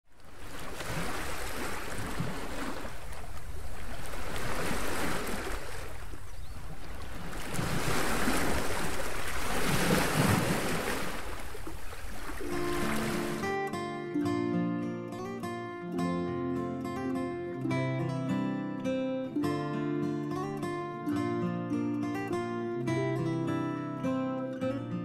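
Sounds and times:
ocean waves washing in: 0:00.3 - 0:14.1.

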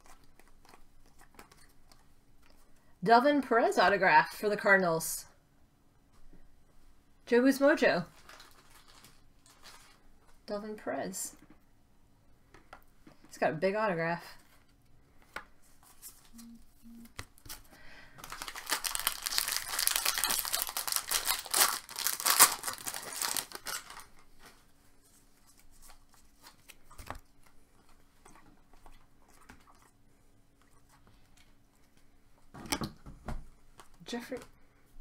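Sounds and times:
plastic wrapper tearing and crinkling: 0:08.1 - 0:10.0, 0:17.4 - 0:24.2.

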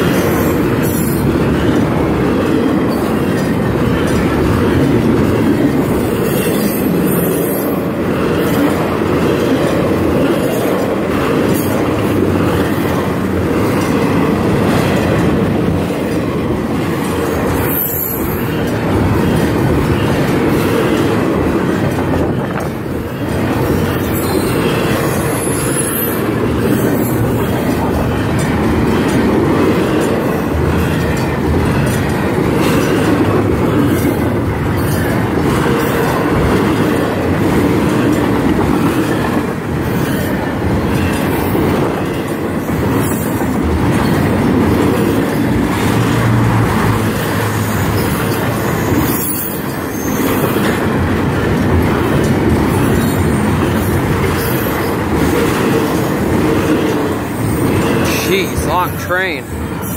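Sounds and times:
train wheels rumbling on rails: 0:00.0 - 0:59.9
high wheel squeals: 0:17.6 - 0:18.5, 0:24.0 - 0:26.2, 0:47.8 - 0:50.4.

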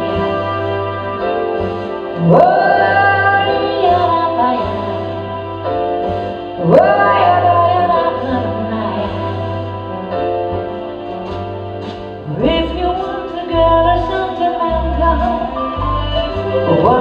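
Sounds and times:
orchestra with strings and bass: 0:00.0 - 0:17.0.

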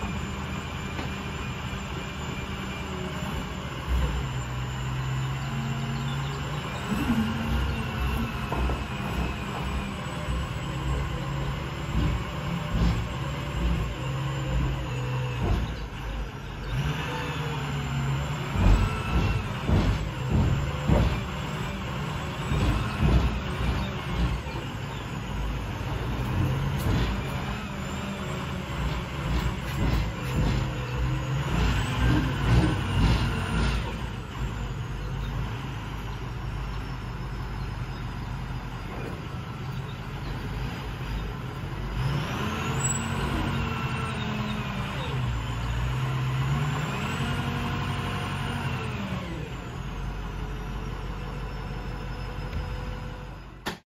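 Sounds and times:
garbage truck diesel engine running: 0:00.0 - 0:53.8
short metal knocks and clanks: 0:18.5 - 0:21.4, 0:28.9 - 0:33.9.

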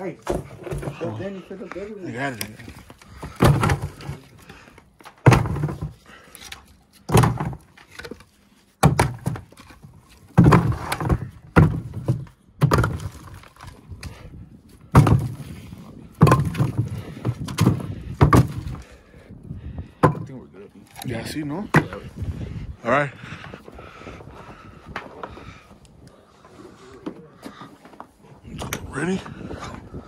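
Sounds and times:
heavy thuds: 0:14.8 - 0:20.4.

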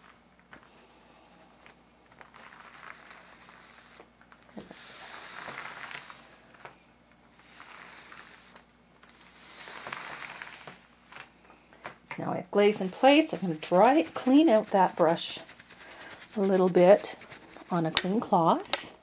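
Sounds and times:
paint roller hissing: 0:02.3 - 0:06.6, 0:07.3 - 0:10.9, 0:12.9 - 0:18.0.

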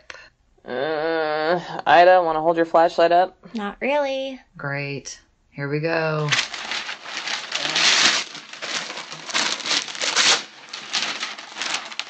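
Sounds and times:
paper ripping and crumpling: 0:06.3 - 0:12.0.

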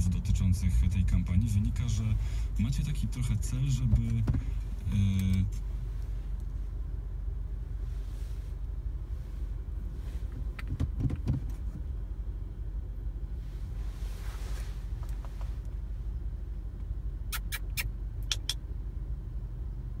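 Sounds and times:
road and engine rumble: 0:00.0 - 0:20.0
dull knocks: 0:10.7 - 0:11.5
sharp clicks: 0:17.4 - 0:18.6.

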